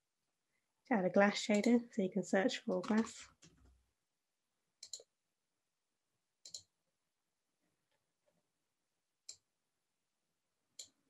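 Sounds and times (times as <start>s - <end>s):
computer mouse clicks: 1.5s - 1.8s, 2.7s - 3.2s, 4.8s - 5.1s, 6.4s - 6.7s.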